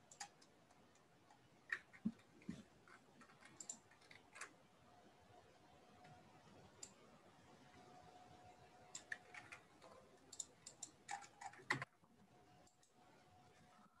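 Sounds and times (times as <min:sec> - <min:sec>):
faint clicks and taps: 0:00.0 - 0:04.6, 0:08.8 - 0:12.0
faint steady hum: 0:00.0 - 0:14.0.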